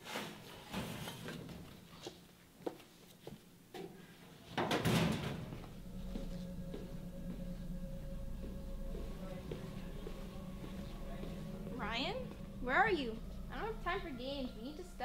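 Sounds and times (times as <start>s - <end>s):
low steady hum: 5.2s - 15.0s.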